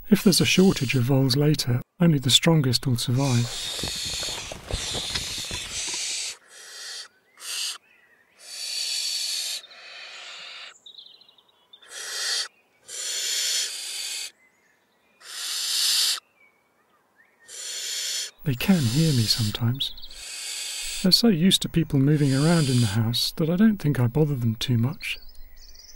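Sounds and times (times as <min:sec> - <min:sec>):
owl chicks hissing: 0:00.5 - 0:01.2, 0:03.2 - 0:07.8, 0:08.4 - 0:10.7, 0:11.8 - 0:14.3, 0:15.2 - 0:16.2, 0:17.5 - 0:21.3, 0:22.0 - 0:23.2.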